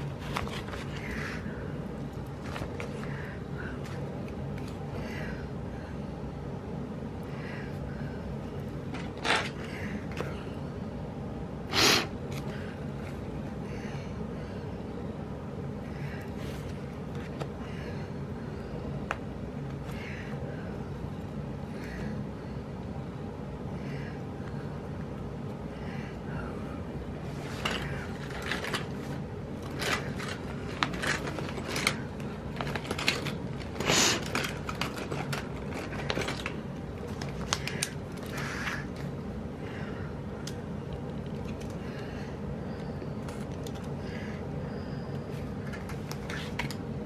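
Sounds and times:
paper clicks scrapes and rustles: 0:00.0 - 0:01.4, 0:02.3 - 0:03.2, 0:08.9 - 0:10.2, 0:27.3 - 0:39.1, 0:45.6 - 0:46.8
steady low hum: 0:00.0 - 0:47.0.

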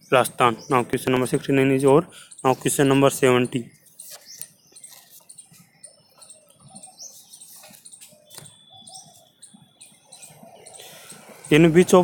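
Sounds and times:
faint high steady tone: 0:05.8 - 0:12.0.

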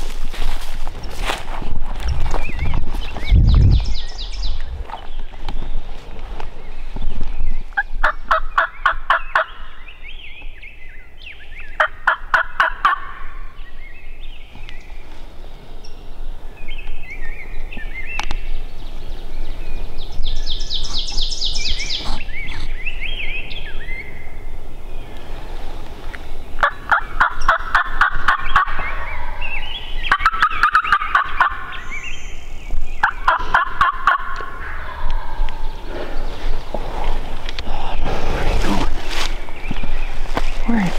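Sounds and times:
turkey gobbling: 0:07.8 - 0:09.6, 0:11.8 - 0:13.3, 0:26.6 - 0:29.3, 0:30.1 - 0:31.8, 0:33.0 - 0:35.6.

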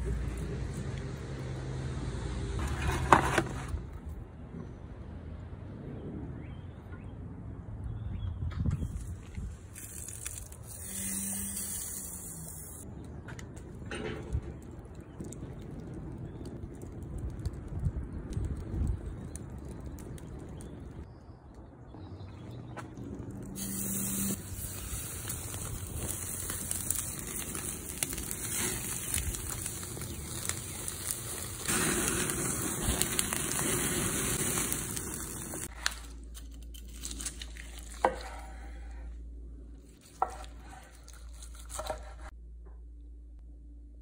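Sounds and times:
low hum: 0:03.8 - 0:44.0
meat sizzling over charcoal: 0:09.7 - 0:12.9, 0:15.0 - 0:21.1, 0:23.4 - 0:36.0.

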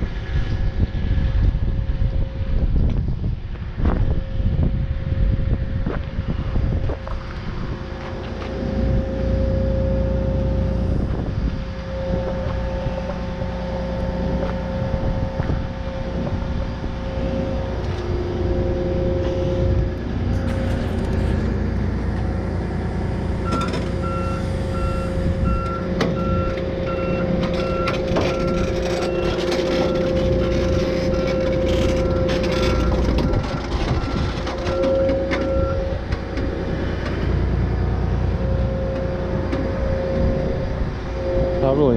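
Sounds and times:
diesel engine running: 0:00.0 - 0:41.9
engine whine: 0:00.0 - 0:41.9
reversing alarm beeping: 0:07.8 - 0:41.9.

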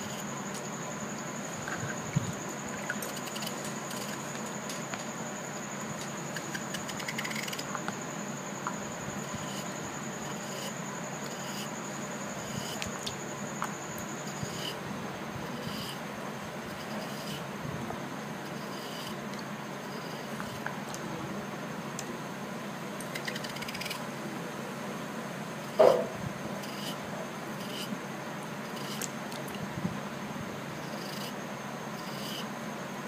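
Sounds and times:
thin high whine: 0:25.6 - 0:27.0.

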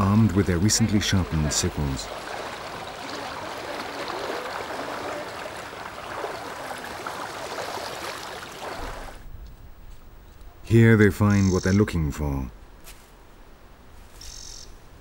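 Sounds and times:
river water splashing around legs: 0:00.0 - 0:09.2.

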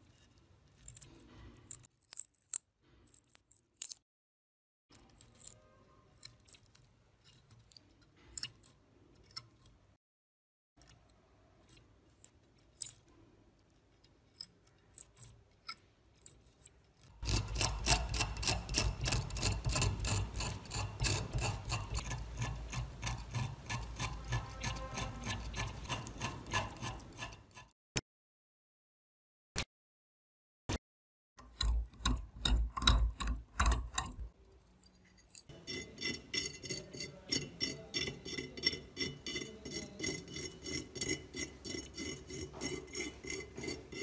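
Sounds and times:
metal tool scraping rust: 0:00.0 - 0:01.9, 0:14.2 - 0:27.8, 0:31.4 - 0:44.0.

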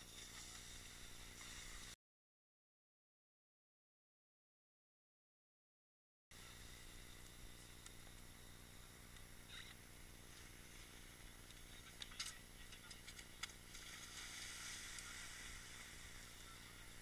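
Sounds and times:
faint steady hiss: 0:06.3 - 0:17.0.

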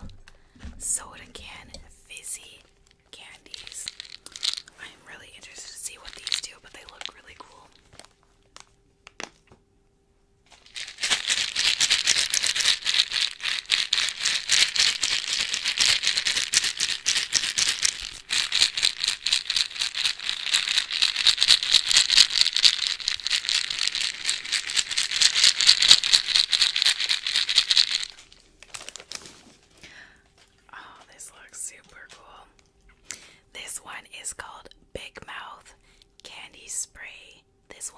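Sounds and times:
hard candies rattling in plastic tubes: 0:02.1 - 0:04.8, 0:05.4 - 0:07.8, 0:10.5 - 0:29.3.

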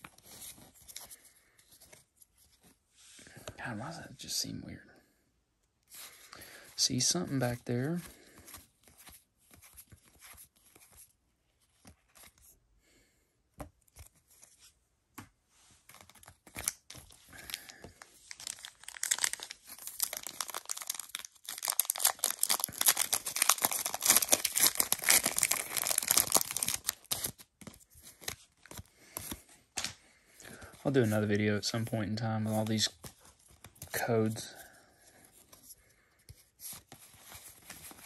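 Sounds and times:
foil wrapper crinkling torn open: 0:16.5 - 0:27.4.

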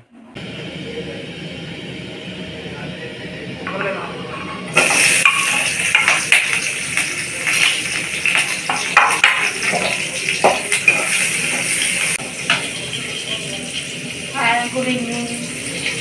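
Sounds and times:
metal spatula scraping pan: 0:04.1 - 0:06.6
onion sizzling in hot oil: 0:04.1 - 0:16.0.

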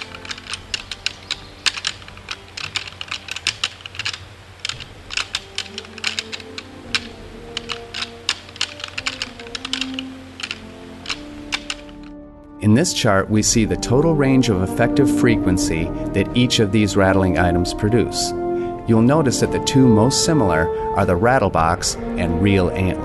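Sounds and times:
antlers clacking and grinding: 0:00.0 - 0:12.1.

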